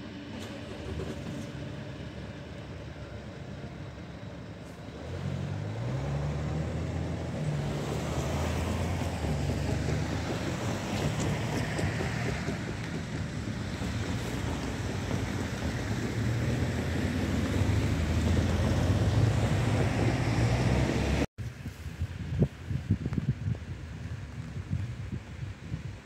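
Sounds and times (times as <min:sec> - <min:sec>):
distant electric train rumble: 0:00.0 - 0:26.0
vehicle engine rumble: 0:00.0 - 0:26.0.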